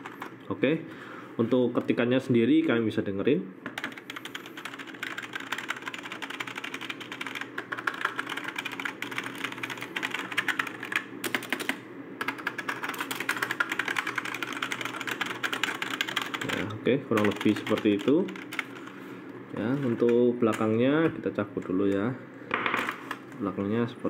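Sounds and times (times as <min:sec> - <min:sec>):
fast typing on keyboard: 0:00.0 - 0:00.3, 0:03.7 - 0:18.9.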